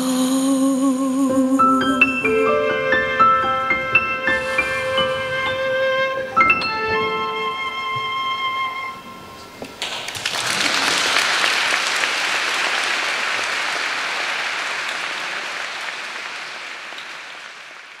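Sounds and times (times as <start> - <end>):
audience applauding: 9.7 - 18.0.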